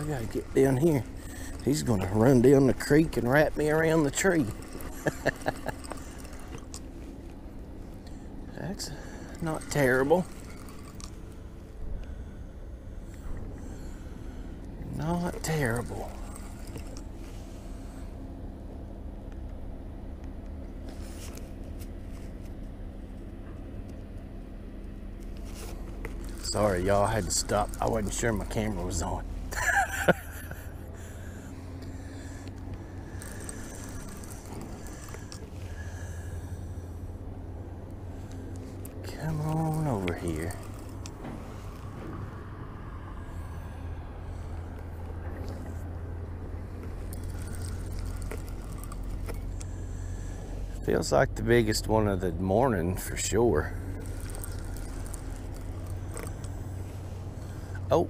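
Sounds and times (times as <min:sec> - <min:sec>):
highway traffic rumble: 0:00.0 - 0:58.0
steady low hum: 0:00.0 - 0:58.0
fishing reel clicks: 0:09.3 - 0:11.2, 0:33.1 - 0:35.4, 0:54.0 - 0:56.6.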